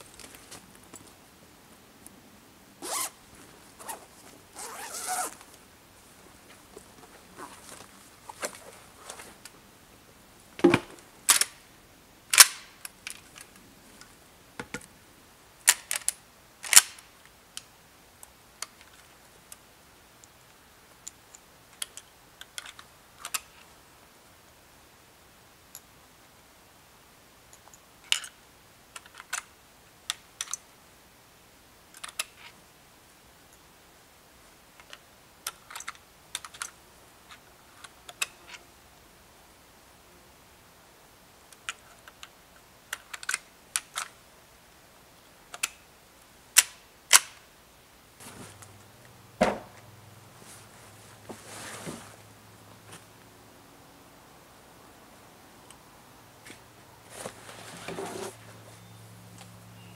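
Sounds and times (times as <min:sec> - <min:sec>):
rifle metallic clicks and clacks: 0:11.3 - 0:11.6, 0:12.3 - 0:13.5, 0:15.6 - 0:17.0, 0:42.9 - 0:44.2.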